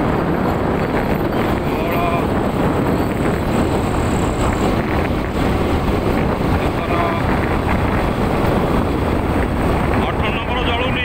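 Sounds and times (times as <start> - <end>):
vehicle road and engine noise: 0.0 - 11.0
wind buffeting microphone: 0.0 - 11.0.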